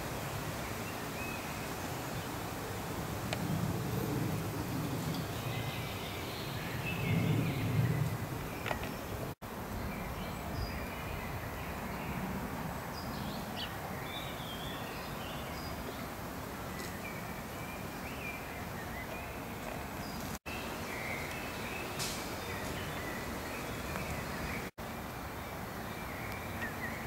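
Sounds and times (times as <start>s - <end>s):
steady outdoor background noise: 0.0s - 27.0s
songbirds chirping and singing: 13.0s - 24.7s, 25.4s - 27.0s.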